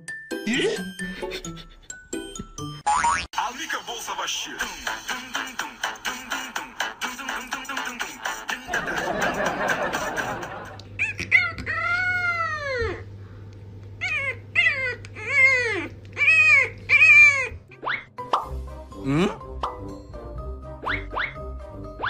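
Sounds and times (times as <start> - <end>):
puppy howling: 14.0 - 17.6.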